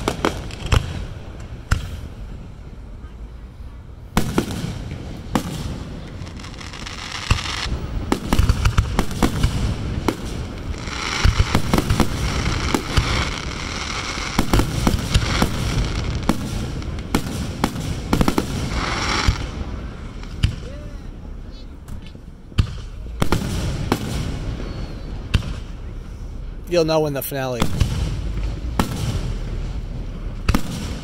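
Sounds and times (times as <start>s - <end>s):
firework crackle hiss: 0.0s - 2.3s, 4.1s - 21.4s
firework shells bursting: 4.2s - 20.6s.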